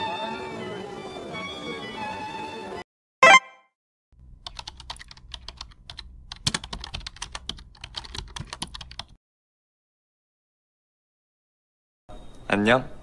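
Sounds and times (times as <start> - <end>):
keyboard typing: 4.4 - 9.2.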